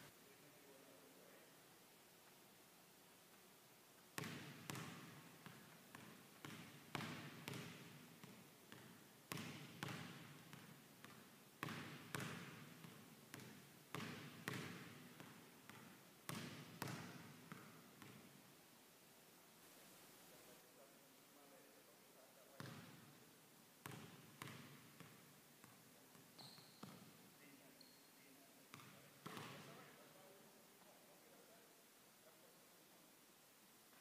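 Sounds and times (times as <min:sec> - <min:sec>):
basketball bouncing on hardwood floor: 0:04.2 - 0:18.2, 0:23.8 - 0:27.1, 0:28.7 - 0:29.6.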